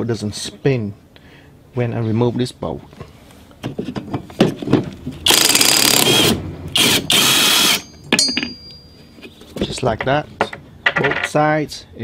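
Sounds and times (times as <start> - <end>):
metallic clink: 7.8 - 9.1
impact tool hammering: 8.1 - 8.8.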